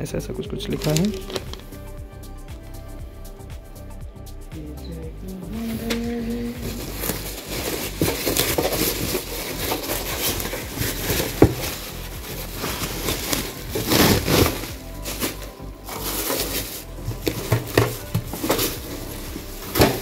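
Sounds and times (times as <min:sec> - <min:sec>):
packaging crinkling and rustling: 0:00.7 - 0:01.8, 0:05.8 - 0:20.0.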